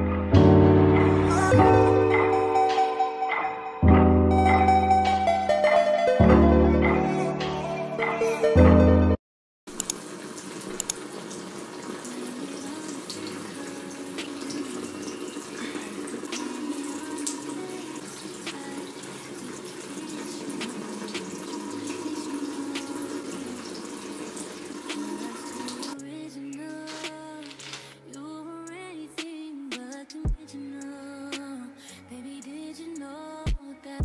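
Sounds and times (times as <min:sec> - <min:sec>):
faucet running: 0:09.7 - 0:26.0
small clicks: 0:09.8 - 0:10.0, 0:10.8 - 0:11.0.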